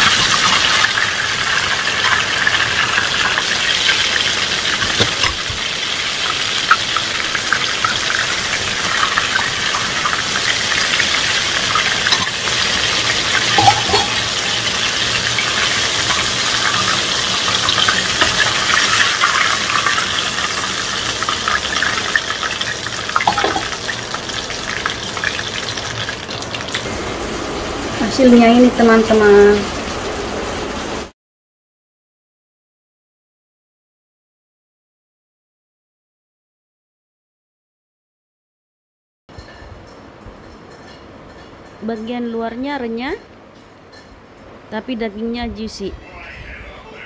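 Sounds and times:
chicken deep-frying in oil: 0:00.0 - 0:31.2.

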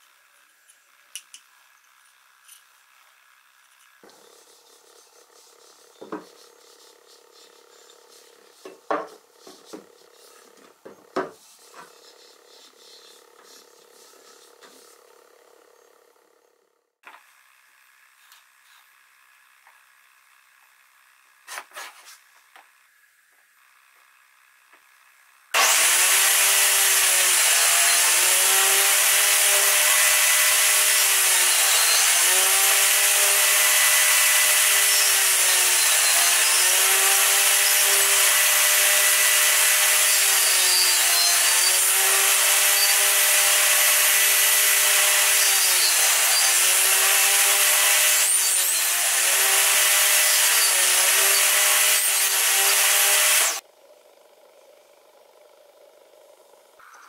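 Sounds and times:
table saw motor whine: 0:00.0 - 0:21.4, 0:23.6 - 0:53.6
saw blade cutting hiss: 0:04.1 - 0:10.5.

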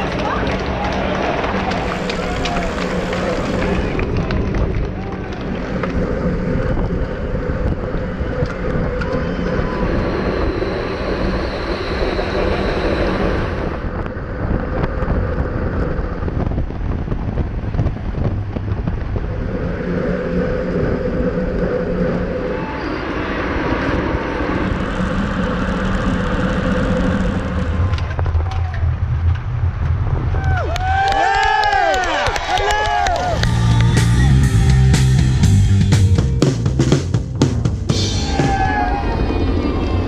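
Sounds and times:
motorbike engine hum: 0:00.0 - 0:31.9
wind and road noise: 0:00.0 - 0:35.5
deeper engine hum: 0:00.0 - 0:40.0.

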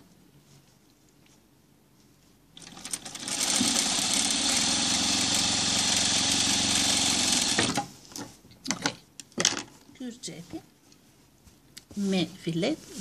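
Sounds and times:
industrial sewing machine running: 0:02.6 - 0:07.8.

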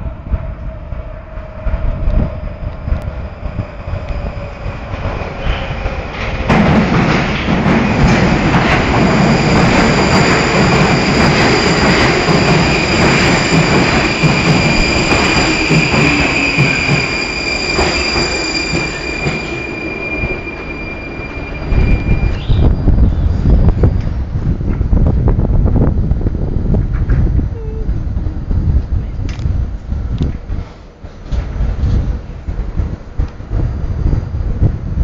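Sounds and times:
high steady squeal: 0:00.0 - 0:06.5, 0:07.9 - 0:24.1
wheel and rail noise: 0:00.0 - 0:27.4
train rumble in tunnel: 0:00.0 - 0:35.0.

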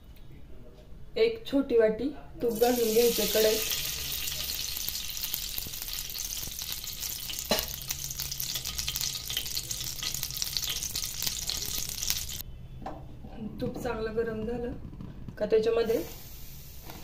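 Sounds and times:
ghee sizzling and crackling: 0:02.4 - 0:12.4.

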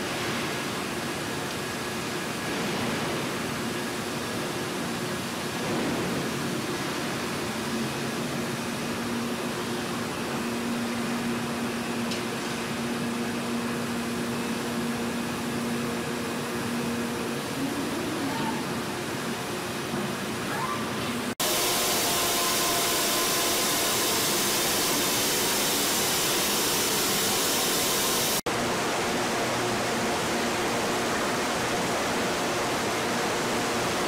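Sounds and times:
machinery hiss and hum: 0:21.1 - 0:34.0.

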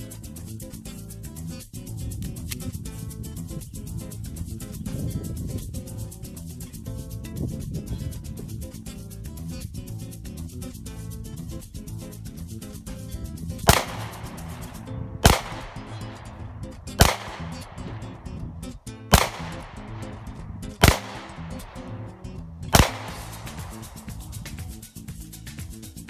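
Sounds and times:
background music: 0:00.0 - 0:26.0
handgun shots: 0:13.7 - 0:14.6, 0:15.2 - 0:15.9, 0:17.0 - 0:17.9, 0:19.1 - 0:20.2, 0:20.8 - 0:21.8, 0:22.7 - 0:23.8.

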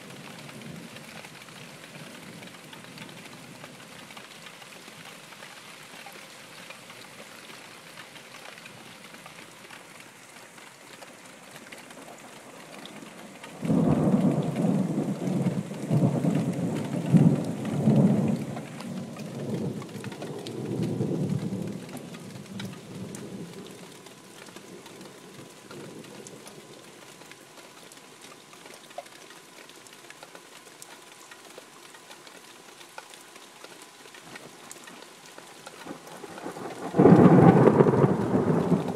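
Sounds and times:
steady rain: 0:00.0 - 0:38.9
thunder clap and rumble: 0:13.5 - 0:23.6, 0:36.2 - 0:38.9.

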